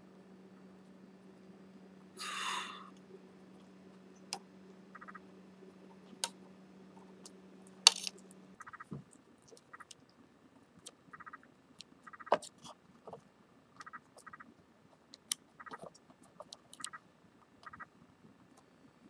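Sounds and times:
faint steady hum: 0:00.0 - 0:19.0
short rattles of ticks: 0:07.9 - 0:10.2, 0:15.1 - 0:17.0.

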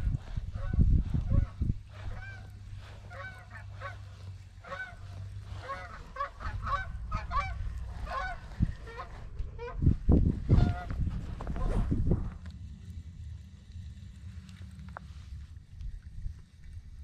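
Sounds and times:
geese honking: 0:00.0 - 0:11.8
low rumble: 0:00.0 - 0:17.0.

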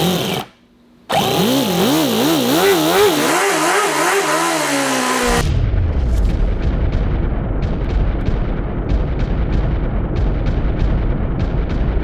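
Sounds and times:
model engine running at high speed: 0:00.0 - 0:00.5, 0:01.1 - 0:05.4
low rumble: 0:05.3 - 0:12.0.

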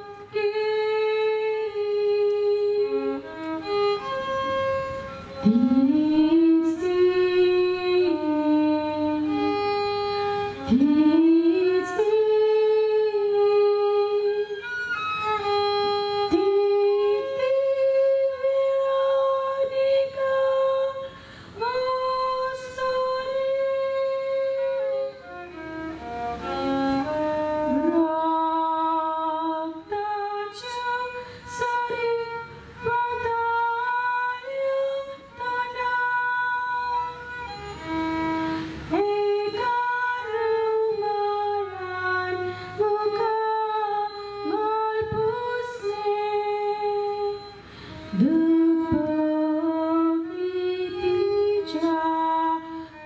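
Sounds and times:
woman singing: 0:00.0 - 0:25.6, 0:26.4 - 0:53.0.

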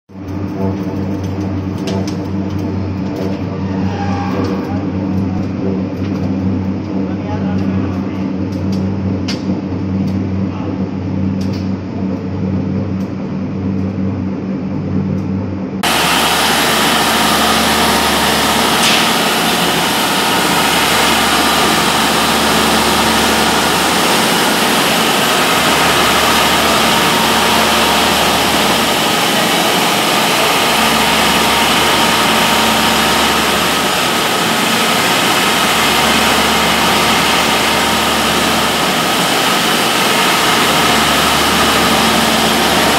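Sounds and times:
centrifuge hissing machine noise: 0:15.8 - 0:42.9
screw press humming: 0:15.8 - 0:42.9.

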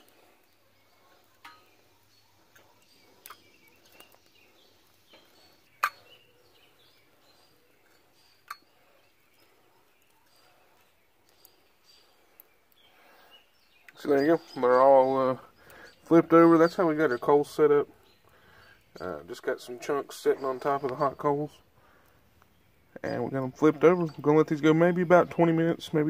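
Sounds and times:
metal tongs clinking on grill grate: 0:01.4 - 0:01.8, 0:07.8 - 0:08.7.

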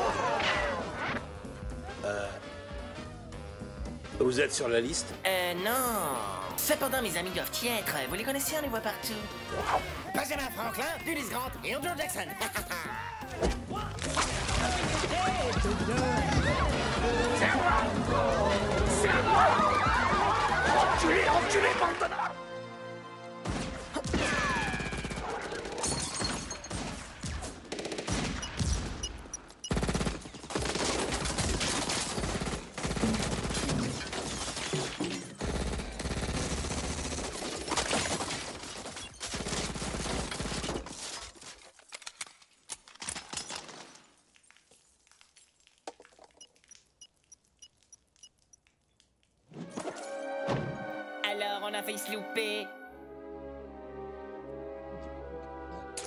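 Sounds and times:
rapid gunfire: 0:24.2 - 0:25.9, 0:26.7 - 0:29.0, 0:29.7 - 0:41.1.

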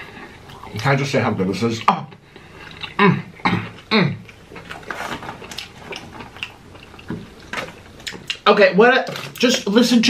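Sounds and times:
soft chewing: 0:01.7 - 0:08.4
man humming mmm: 0:03.0 - 0:04.3.

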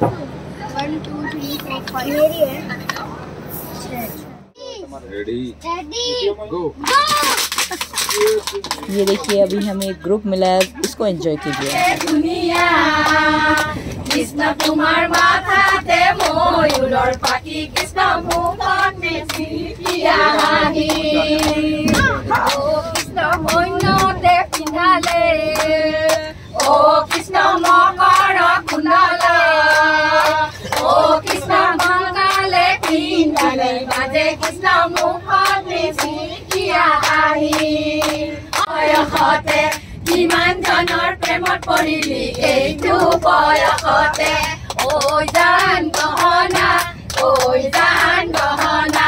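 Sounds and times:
rhythmic hand-clapping: 0:06.8 - 0:49.0
women singing in chorus: 0:11.4 - 0:49.0.

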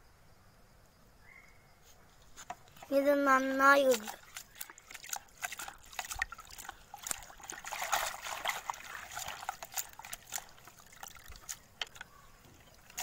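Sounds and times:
water sloshing in plastic bucket: 0:02.2 - 0:13.0.

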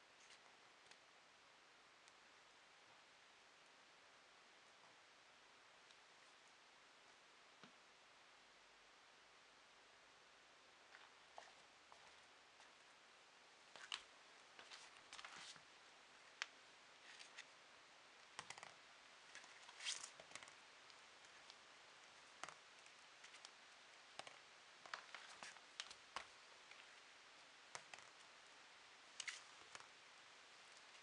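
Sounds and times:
cat claws scratching floor: 0:29.2 - 0:29.9.

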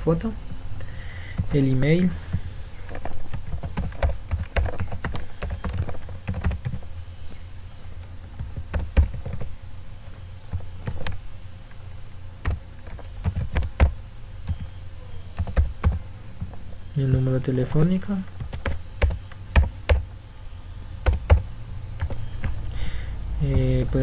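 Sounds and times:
keyboard typing clicks: 0:02.9 - 0:06.8, 0:12.4 - 0:14.8, 0:15.4 - 0:17.3, 0:18.4 - 0:20.1, 0:21.0 - 0:22.6.

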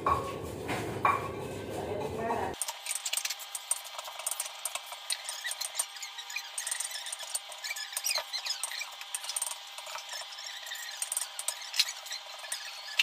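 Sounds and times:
utensils and crockery clinking: 0:00.0 - 0:13.0.

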